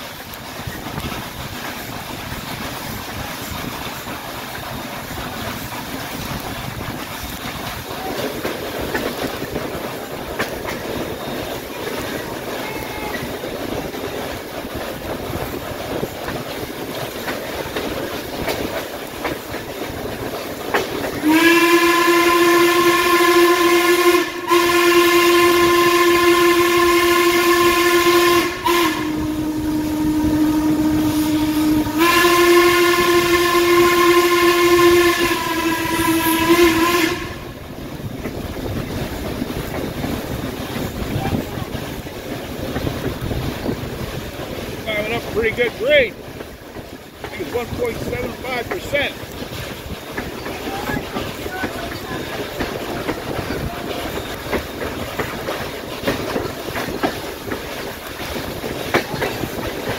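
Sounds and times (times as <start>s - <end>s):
train wheels clickety-clack: 0.0s - 59.9s
steam locomotive whistle: 21.1s - 37.6s.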